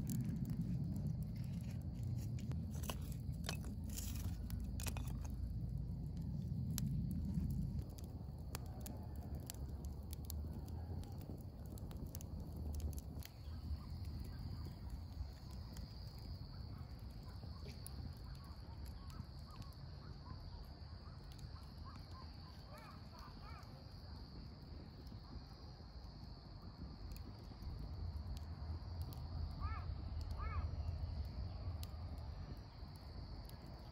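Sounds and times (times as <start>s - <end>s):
low rumble: 0.0s - 17.4s.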